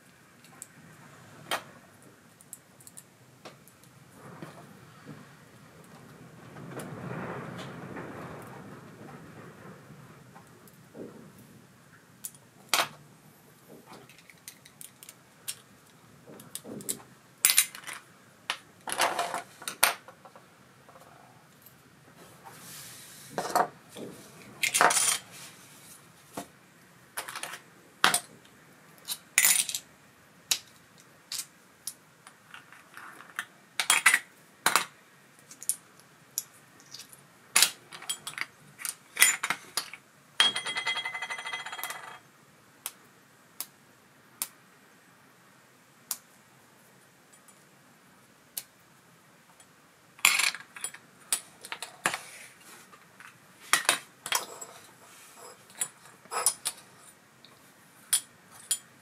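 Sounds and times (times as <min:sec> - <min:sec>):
small metal parts clinking: 0:29.0 - 0:29.8.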